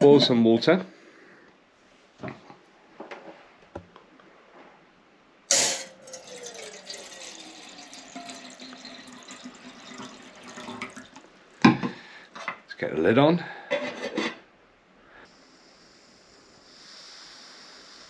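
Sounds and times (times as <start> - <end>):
water pouring into metal pot: 5.5 - 11.3.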